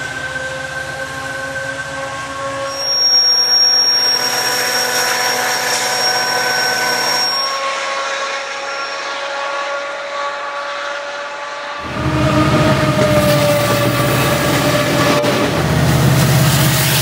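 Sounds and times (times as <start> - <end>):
high whine: 0.0 - 9.0
diesel locomotive horn howling: 0.0 - 17.0.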